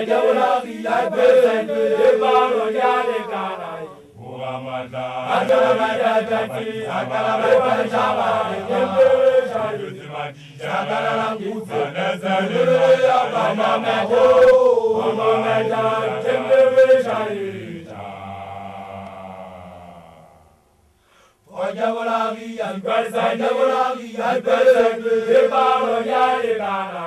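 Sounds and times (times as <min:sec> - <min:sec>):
men chanting together: 0:00.0 - 0:20.6, 0:21.5 - 0:27.0.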